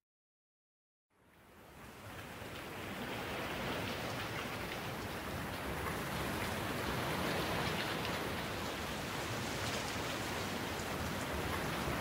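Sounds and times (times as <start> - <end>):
steady rain falling: 1.2 - 12.0.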